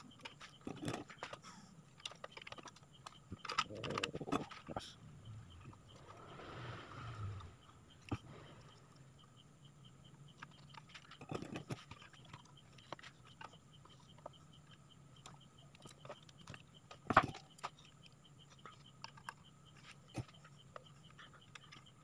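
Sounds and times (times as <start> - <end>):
clicks and rustles of handling wires: 0.0 - 5.6.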